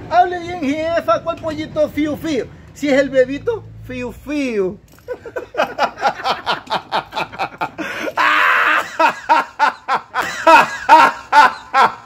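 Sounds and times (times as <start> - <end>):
man laughing loudly: 5.0 - 12.0.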